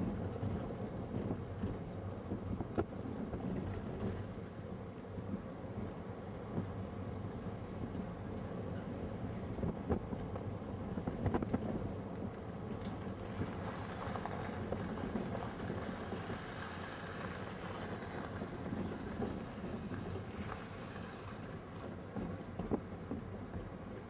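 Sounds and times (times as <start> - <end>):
vehicle engine and road rumble: 0.0 - 24.0.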